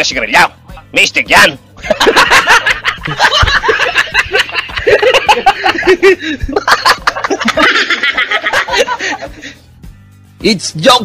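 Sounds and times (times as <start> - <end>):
people laughing: 1.8 - 9.6.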